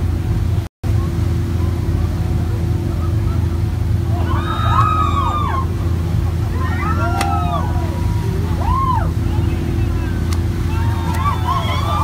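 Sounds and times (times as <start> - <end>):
boat engine humming: 0.0 - 12.0
dolphins whistling: 4.2 - 12.0.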